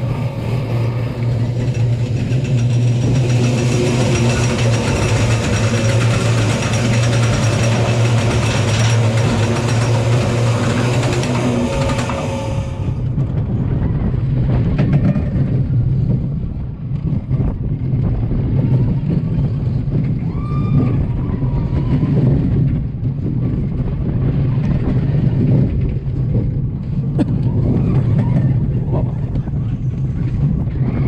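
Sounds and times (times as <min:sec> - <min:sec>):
roller coaster wheels rumbling: 0:00.0 - 0:31.0
wind on microphone: 0:00.0 - 0:31.0.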